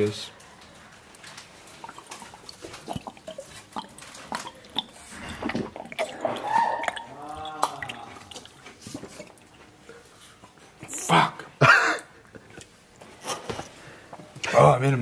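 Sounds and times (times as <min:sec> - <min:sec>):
liquid glugging from bottle: 0:01.2 - 0:09.9.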